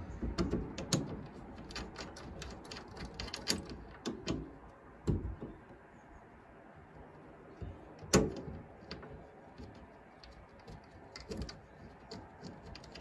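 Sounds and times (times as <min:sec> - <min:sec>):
metallic clicks of hardware handled: 0:00.2 - 0:05.6.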